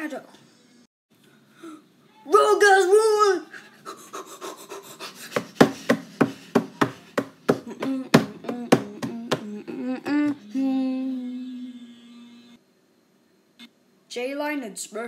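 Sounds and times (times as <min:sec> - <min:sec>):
cartoon running footsteps: 0:05.2 - 0:09.5
steady held tone: 0:08.9 - 0:12.6.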